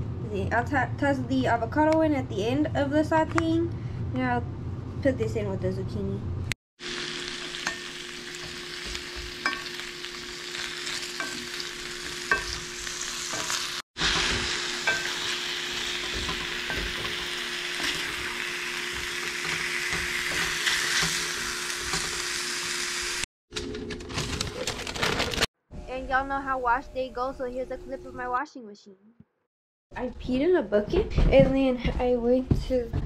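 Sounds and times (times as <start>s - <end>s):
vegetables sizzling in a skillet: 6.8s - 23.2s.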